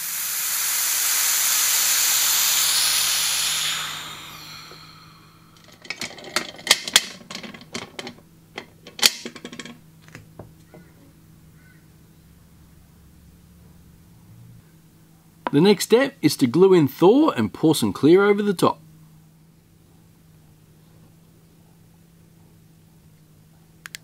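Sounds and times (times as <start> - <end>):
compressed air hissing: 0.0 - 8.1
metallic clicks and clanks: 5.6 - 9.8.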